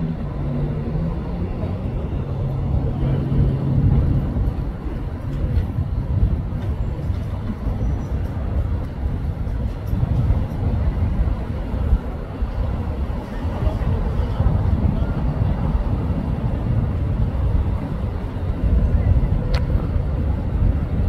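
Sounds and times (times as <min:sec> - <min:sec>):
vehicle traffic rumble: 0:00.0 - 0:21.0.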